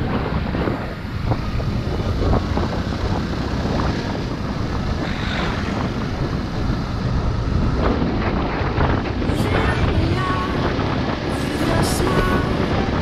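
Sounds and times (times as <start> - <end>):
motorcycle engine rumble: 0.0 - 13.0
wind buffeting microphone: 0.0 - 13.0.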